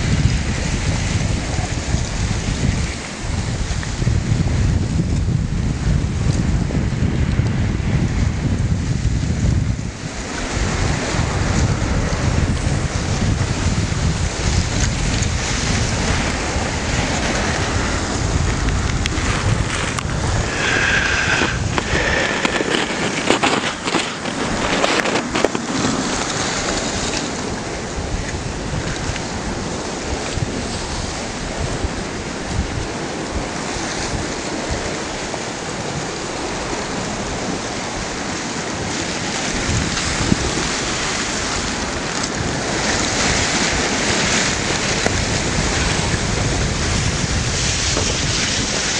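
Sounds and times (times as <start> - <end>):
wind buffeting microphone: 0.0 - 48.9
ice floes grinding and rustling: 9.4 - 31.7, 32.4 - 48.9
ice clicks and crackles: 18.5 - 27.3.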